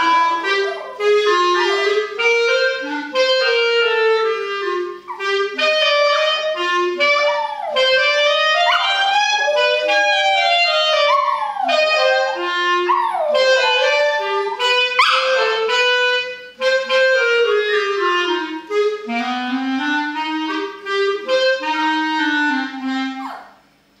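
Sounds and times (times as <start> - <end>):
dog howling: 0.0 - 2.9, 6.4 - 16.0
woodwind music: 0.0 - 23.4.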